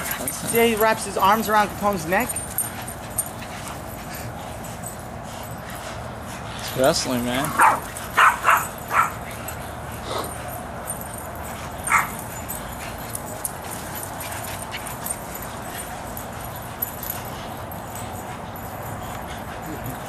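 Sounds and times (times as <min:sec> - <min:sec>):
dogs playing at a rope: 0:00.0 - 0:20.0
dog barking: 0:07.5 - 0:09.1.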